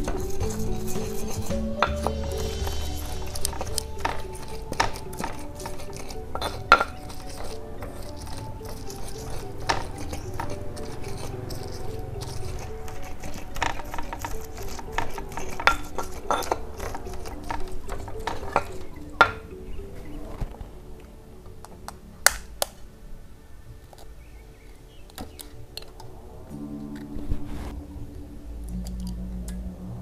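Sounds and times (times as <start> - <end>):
stone pestle grinding in mortar: 0.0 - 20.1.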